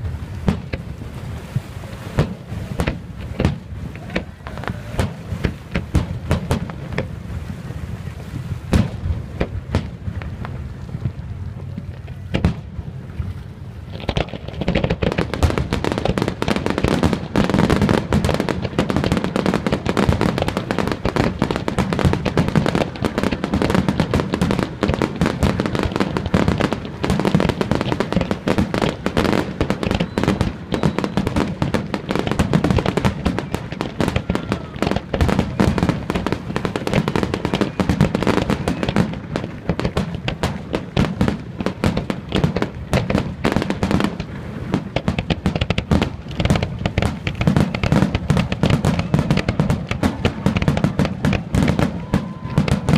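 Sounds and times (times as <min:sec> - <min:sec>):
low rumble: 0:00.0 - 0:16.2
fireworks crackling: 0:00.0 - 0:52.9.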